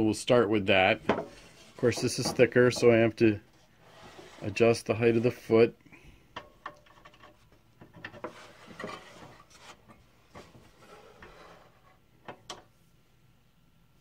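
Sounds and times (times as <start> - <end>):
board sliding over saw table: 1.0 - 5.5, 8.2 - 12.0.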